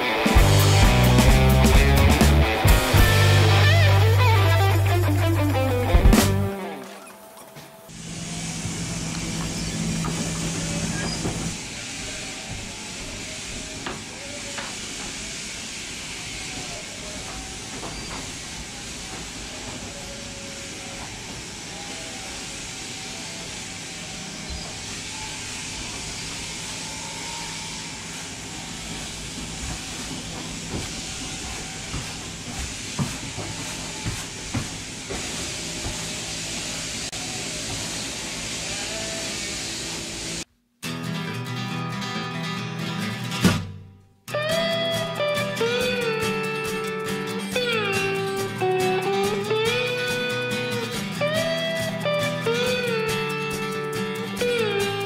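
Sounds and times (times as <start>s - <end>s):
steady hiss: 0.0s - 6.7s, 7.8s - 40.5s, 44.3s - 55.0s
machine motor hum: 0.0s - 40.5s.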